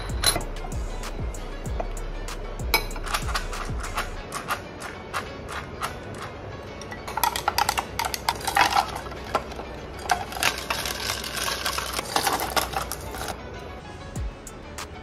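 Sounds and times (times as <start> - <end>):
spoon clinking against glass: 0.0 - 0.5
sweetener dispenser clicking: 2.8 - 13.4.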